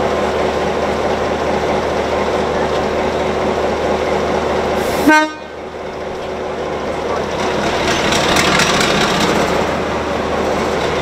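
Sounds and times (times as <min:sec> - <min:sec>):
diesel locomotive engine running: 0:00.0 - 0:11.0
loud locomotive horn toot: 0:05.0 - 0:05.6.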